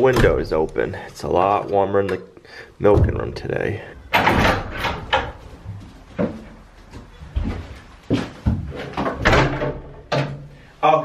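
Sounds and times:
hooves and footsteps: 5.3s - 9.0s.

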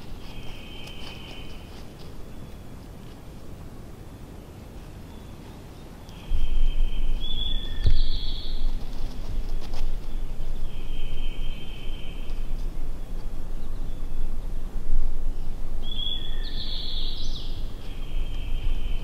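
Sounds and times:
songbird singing buzzy notes: 0.0s - 2.8s, 4.1s - 19.0s
low outdoor rumble: 0.0s - 19.0s.

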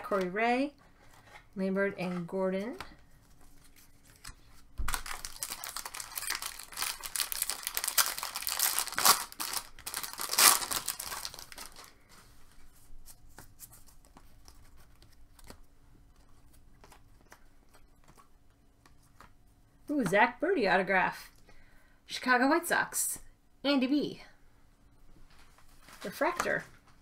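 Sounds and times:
wrapper tearing and crinkling: 3.7s - 12.0s.

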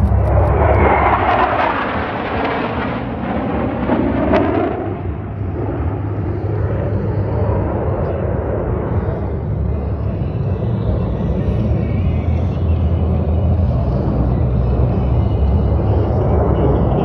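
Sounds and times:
jets flying past: 0.0s - 11.8s.

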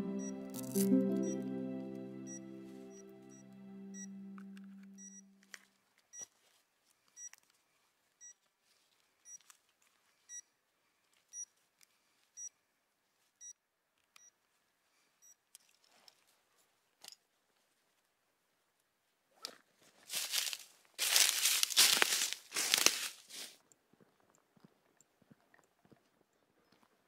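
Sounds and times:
electronic device beeping: 0.0s - 1.4s, 2.3s - 5.3s.

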